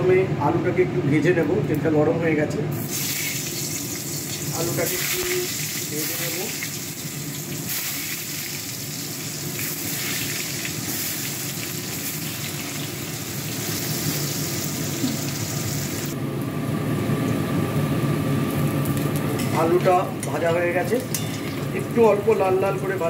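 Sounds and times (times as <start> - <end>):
potatoes sizzling in hot oil: 2.8 - 16.2.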